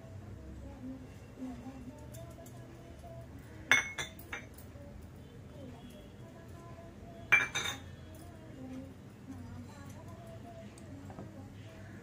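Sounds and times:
utensils and dishes clinking: 3.7s - 4.8s, 7.3s - 8.4s.

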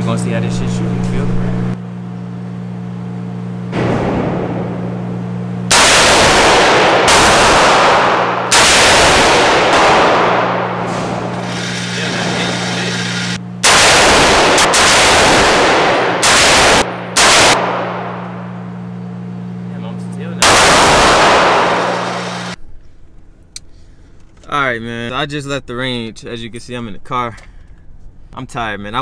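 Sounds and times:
gunshots with ringing tail: 3.7s - 18.7s, 20.4s - 22.6s.

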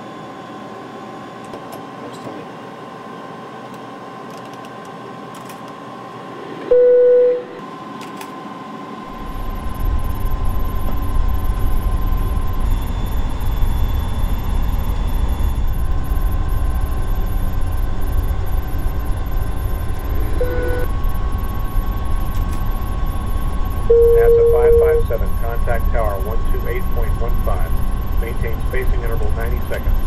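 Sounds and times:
flight deck hum: 4.3s - 8.4s, 9.0s - 30.0s
loud electronic beep: 6.7s - 7.6s, 20.0s - 20.9s, 23.9s - 25.4s
deep rumble: 9.1s - 30.0s.

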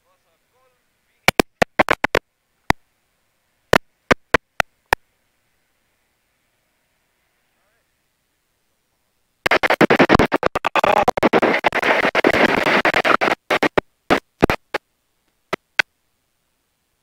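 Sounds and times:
microphone handling noise: 1.3s - 2.2s, 9.5s - 14.8s.

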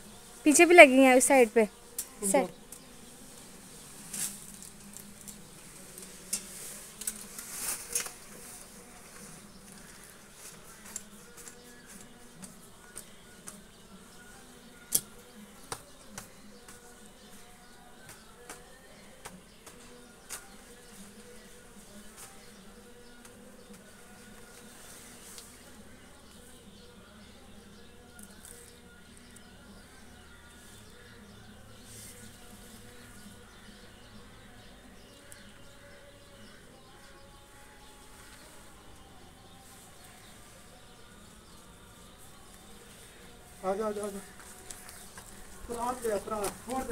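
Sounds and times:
rustling and scraping: 2.8s - 13.6s, 42.0s - 46.9s.

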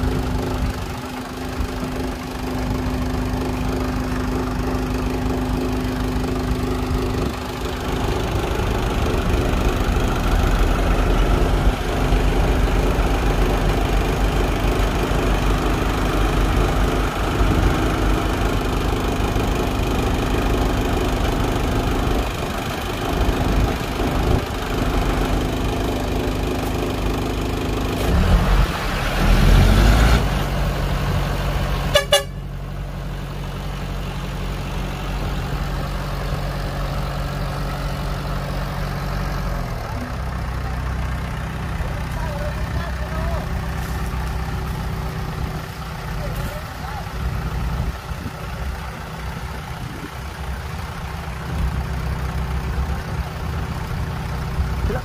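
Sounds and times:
heavy diesel engines under load: 0.0s - 55.0s.

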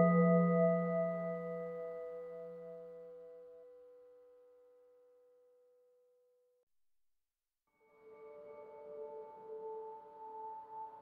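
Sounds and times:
held chord of ringing tones: 0.0s - 3.1s.

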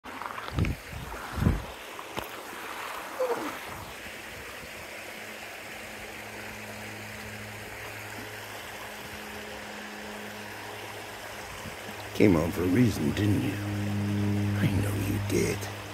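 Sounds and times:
creek water running: 0.0s - 15.9s
low steady hum: 5.1s - 15.9s
short falling whine: 12.4s - 15.9s.

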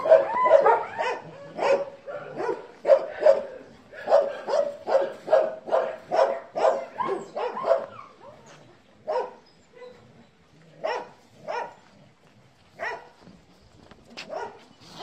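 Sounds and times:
dog barking: 0.0s - 8.2s, 9.1s - 10.0s, 10.8s - 11.8s, 12.8s - 13.1s, 14.2s - 14.6s.

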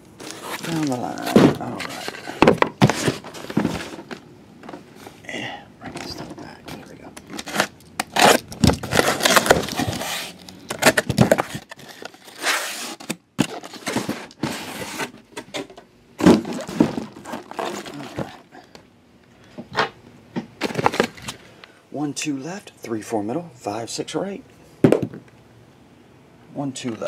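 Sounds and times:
packing tape tearing: 0.2s - 4.2s, 6.8s - 18.5s
cardboard scraping and rustling: 0.2s - 5.2s, 5.9s - 18.5s.

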